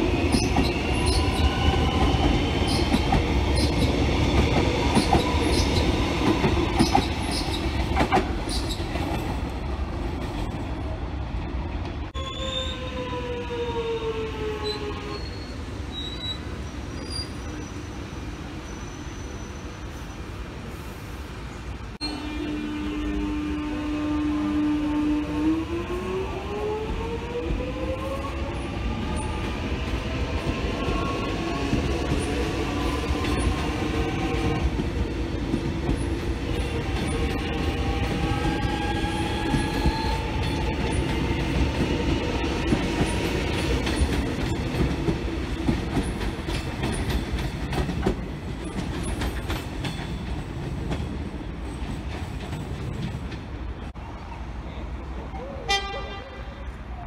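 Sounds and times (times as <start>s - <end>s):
wheels rumbling on rail: 0.0s - 12.2s, 14.6s - 57.0s.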